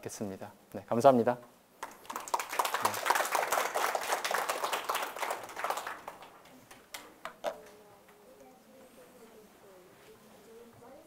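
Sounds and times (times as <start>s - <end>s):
audience applauding: 1.8s - 7.1s.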